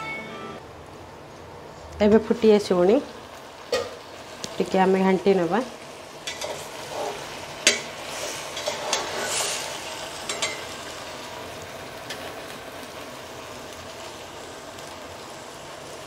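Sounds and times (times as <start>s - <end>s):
chicken sizzling: 0.0s - 16.0s
metal spoon clinking on pot: 10.3s - 10.7s.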